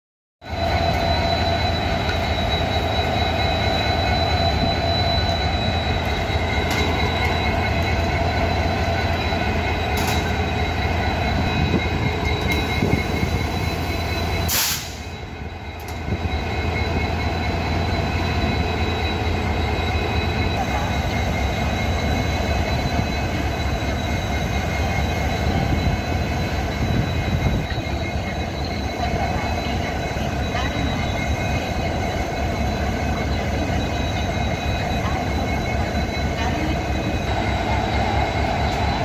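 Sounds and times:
diesel locomotive idling: 0.4s - 39.0s
short sharp burst of noise: 14.5s - 15.1s.

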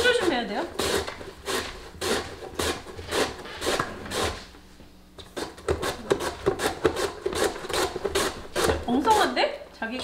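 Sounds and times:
radish rasping on slicer: 0.0s - 4.5s.

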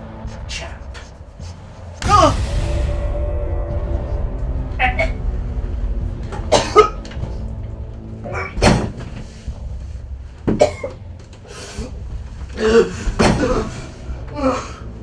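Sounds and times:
low droning music: 0.0s - 15.0s
man coughing and gagging: 6.4s - 7.2s, 10.5s - 11.0s, 12.6s - 14.8s.

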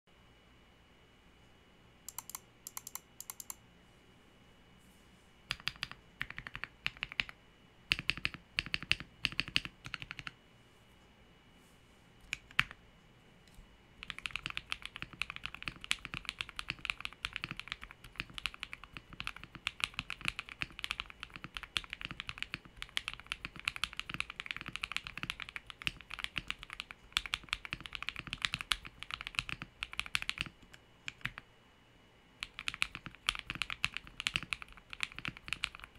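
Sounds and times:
mechanical keyboard typing: 2.1s - 3.6s, 5.5s - 10.4s, 12.2s - 12.8s, 14.0s - 31.4s, 32.4s - 35.9s.

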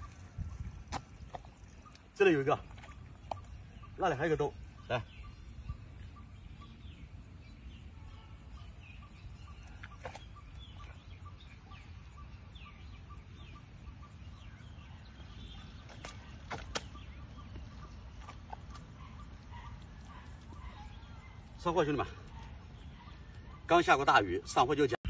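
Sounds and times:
small birds chirping: 0.0s - 25.0s
sharp clicks: 6.9s - 25.0s.

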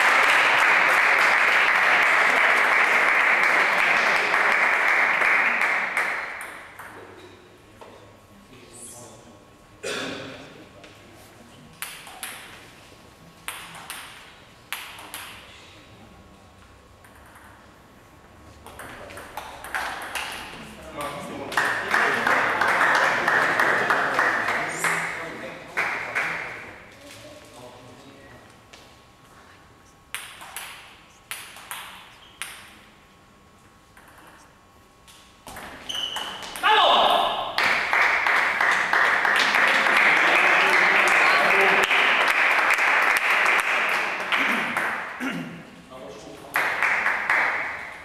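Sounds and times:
table tennis ball clicks: 11.8s - 12.6s, 13.5s - 15.4s, 30.1s - 32.7s, 33.9s - 34.4s
table tennis ball clicking: 17.0s - 17.6s, 30.1s - 32.7s
hall echo: 36.6s - 45.7s.

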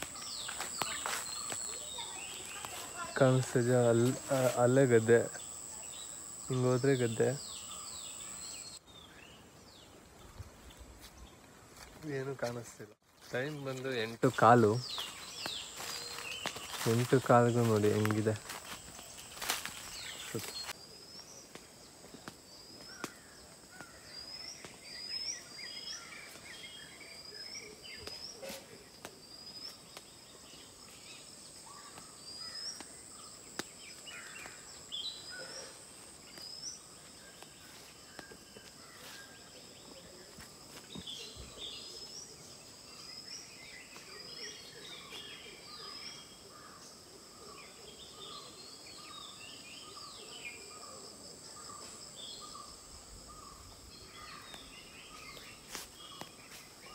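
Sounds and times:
high-pitched insect drone: 0.0s - 8.8s
birds calling: 0.0s - 9.6s, 12.8s - 21.6s, 22.2s - 56.9s.

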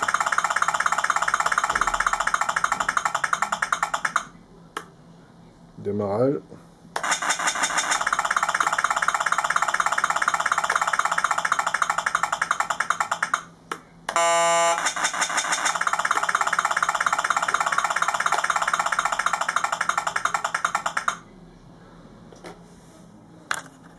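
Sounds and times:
electronic horn blast: 14.2s - 15.6s.

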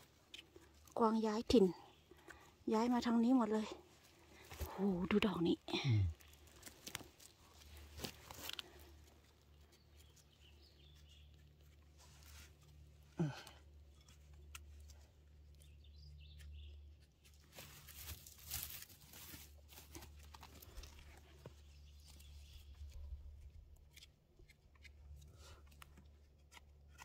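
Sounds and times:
leaf litter rustling: 17.4s - 21.0s.

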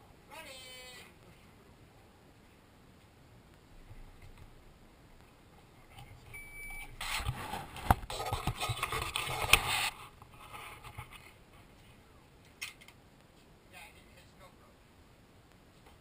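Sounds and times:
microphone rubbing and scraping: 6.8s - 12.0s.

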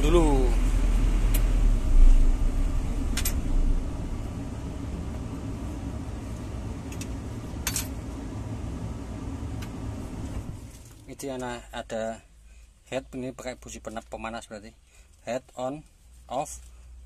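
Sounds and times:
diesel engine shutting down: 0.0s - 11.0s
low hum: 0.0s - 11.8s.

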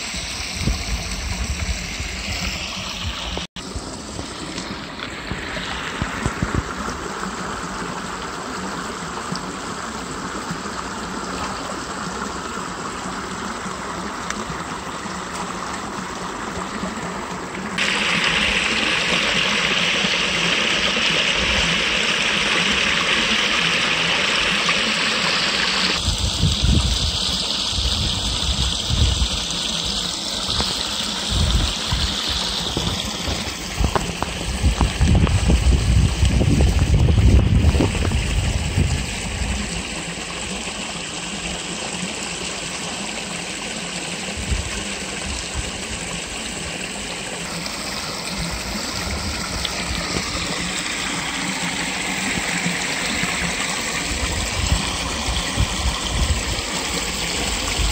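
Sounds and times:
water rushing over weir: 0.0s - 57.9s.

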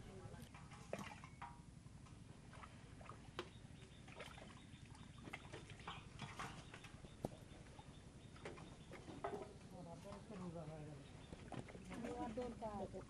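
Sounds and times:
water patters in metal tray: 3.1s - 7.2s, 8.4s - 13.0s.

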